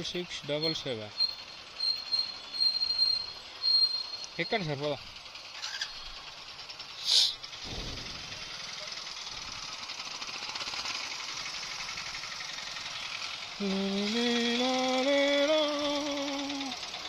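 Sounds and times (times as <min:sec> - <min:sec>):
wind and road noise: 0:00.0 - 0:13.6
motorcycle engine running: 0:00.0 - 0:17.0
short sharp hiss: 0:07.0 - 0:08.7.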